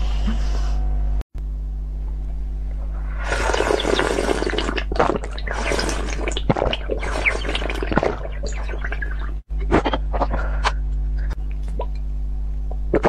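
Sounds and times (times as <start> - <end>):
slurping liquid: 3.1 - 10.4.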